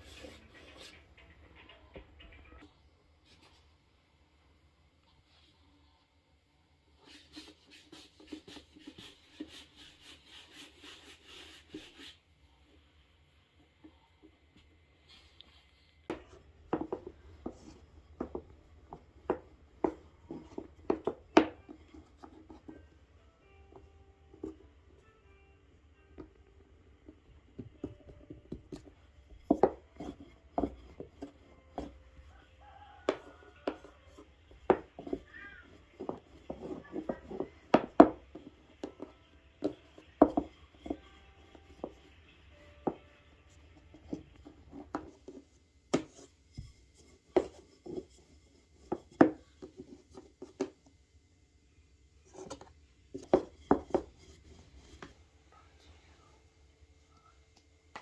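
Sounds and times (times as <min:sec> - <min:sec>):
dough rubbing on wooden board: 0:07.0 - 0:12.4, 0:32.6 - 0:42.1.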